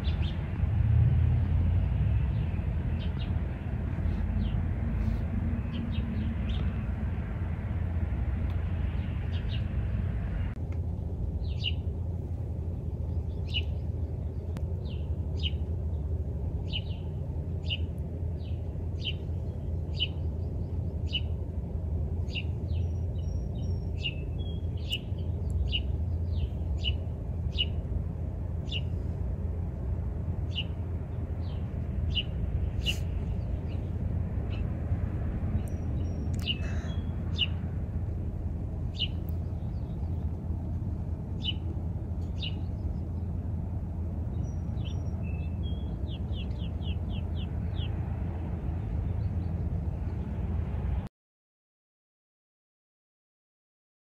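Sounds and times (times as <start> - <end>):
low steady rumble: 0.0 - 51.1
chipmunk chip alarm calls: 35.7 - 37.6.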